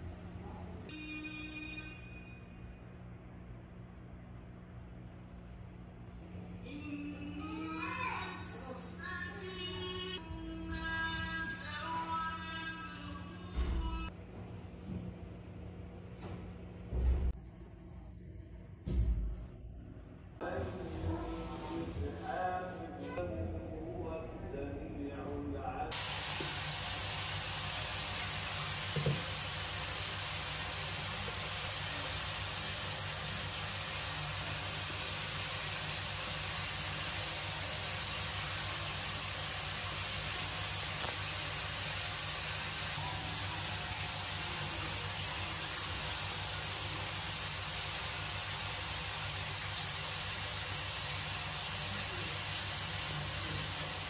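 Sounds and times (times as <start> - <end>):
steady hiss: 25.9 - 54.0.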